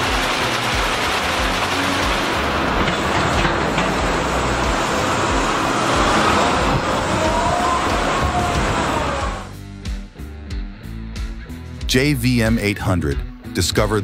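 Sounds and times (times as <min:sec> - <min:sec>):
heavy machinery rumbling: 0:00.0 - 0:09.6
hydraulic whine: 0:00.0 - 0:09.6.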